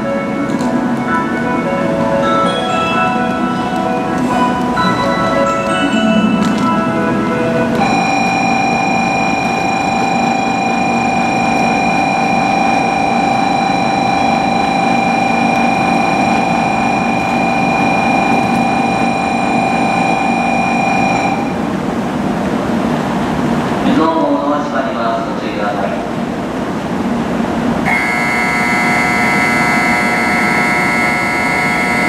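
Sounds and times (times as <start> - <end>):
station hum and idling trains: 0.0 - 32.0
electronic departure buzzer: 7.8 - 21.6, 27.8 - 32.0.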